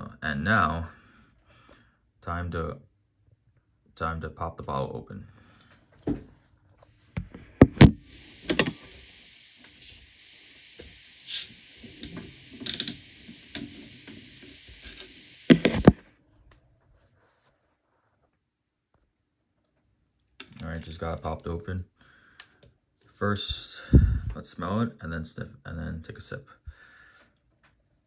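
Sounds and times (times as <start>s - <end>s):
carbonation hissing from bottle: 7.8s - 15.9s.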